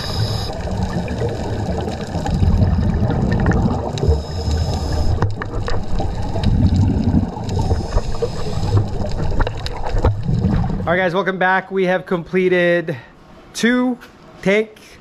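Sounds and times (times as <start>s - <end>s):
small underwater clicks: 1.6s - 10.7s
underwater regulator breathing bubbles: 2.2s - 9.6s.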